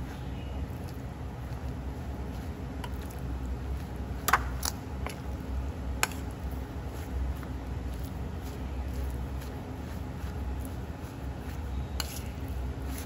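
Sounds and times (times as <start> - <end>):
meat squishing in cornstarch: 0.0 - 13.0
steady low hum: 0.0 - 13.0
fork clinking against metal bowl: 12.0 - 12.2.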